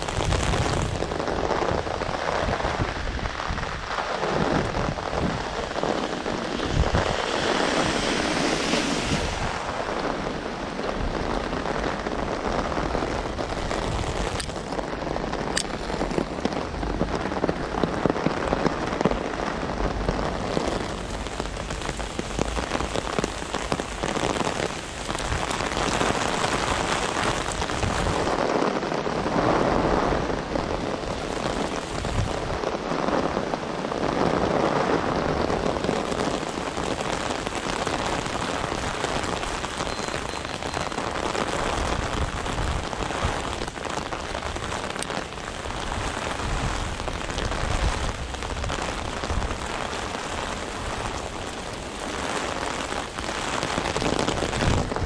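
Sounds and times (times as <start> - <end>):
heavy rain pouring: 0.0 - 55.0.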